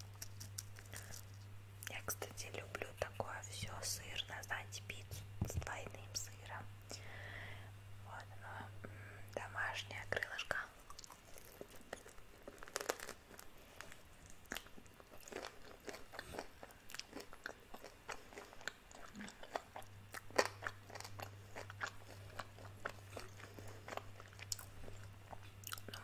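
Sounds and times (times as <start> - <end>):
crunching fried chicken: 0.0 - 1.5, 10.9 - 26.0.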